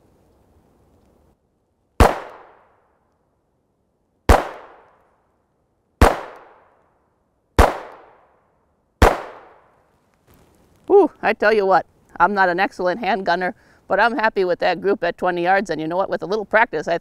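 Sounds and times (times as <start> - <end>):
pistol shots with short echo: 2.0 - 2.8, 4.3 - 5.0, 6.0 - 6.8, 7.6 - 8.3, 9.0 - 9.7.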